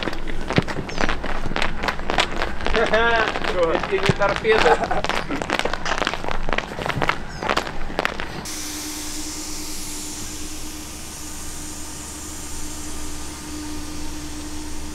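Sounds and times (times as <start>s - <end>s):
steady hiss: 0.0s - 14.9s
steady tone: 5.7s - 14.9s.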